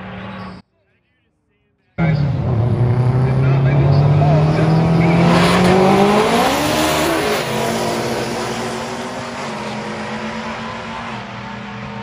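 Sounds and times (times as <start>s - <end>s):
racing engine at full throttle: 2.0s - 12.0s.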